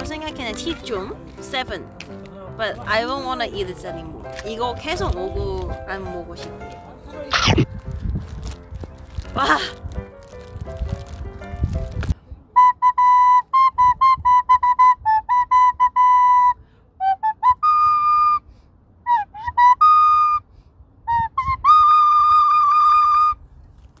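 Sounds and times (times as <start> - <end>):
recorder playing solo: 12.6 - 18.4, 19.1 - 20.4.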